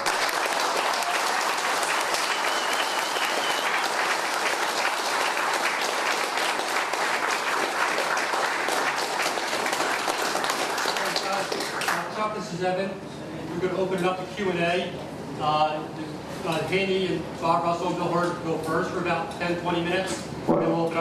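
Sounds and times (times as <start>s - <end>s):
audience applause: 0.0s - 12.1s.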